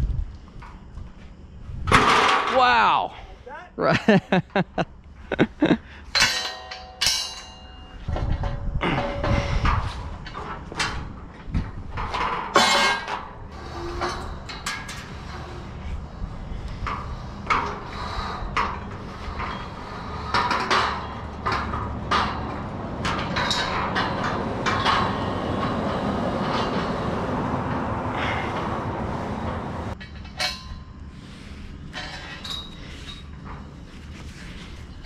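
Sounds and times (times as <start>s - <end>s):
metallic clanks of scaffolding: 1.9s - 2.8s, 6.1s - 35.0s
steady low rumble: 13.2s - 35.0s.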